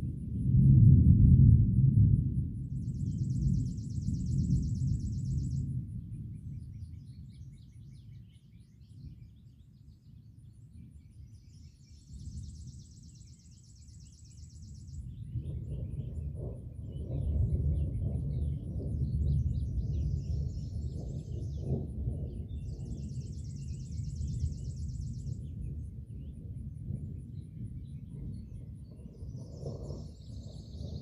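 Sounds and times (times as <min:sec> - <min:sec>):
rolling thunder: 0:00.0 - 0:07.5, 0:14.9 - 0:31.0
birds chirping: 0:27.8 - 0:31.0.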